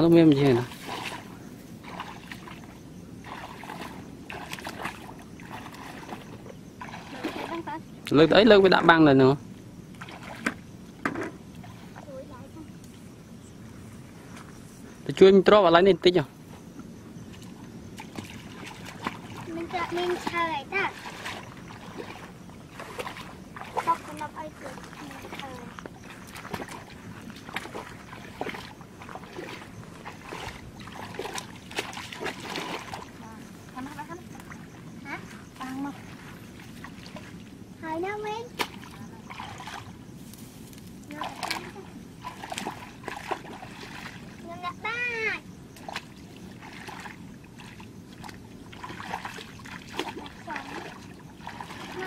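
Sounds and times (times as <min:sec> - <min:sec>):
muddy water sloshing and splashing: 0:00.0 - 0:12.8, 0:17.1 - 0:52.0.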